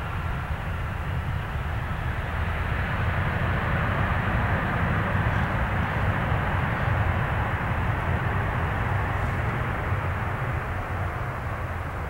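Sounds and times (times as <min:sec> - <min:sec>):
distant jet engine roar: 0:00.0 - 0:12.0.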